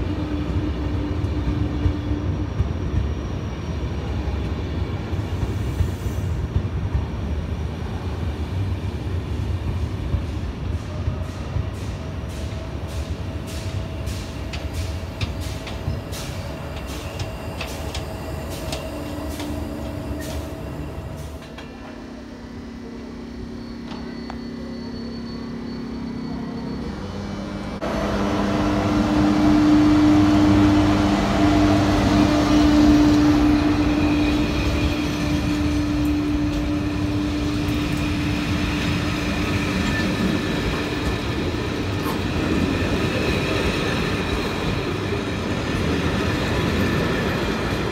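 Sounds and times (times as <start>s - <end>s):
train electric hum: 0.0s - 47.9s
train rail clatter: 9.7s - 22.0s, 32.0s - 47.9s.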